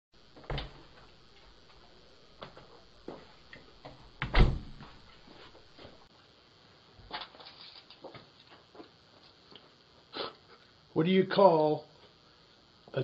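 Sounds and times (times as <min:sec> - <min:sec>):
footsteps: 0:00.4 - 0:06.1
loud thump: 0:04.2 - 0:05.0.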